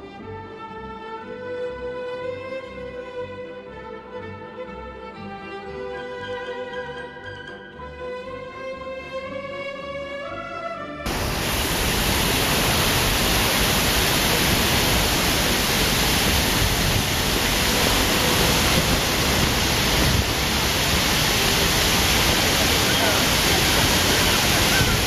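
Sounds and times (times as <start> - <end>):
fountain water splashing: 11.1 - 25.0.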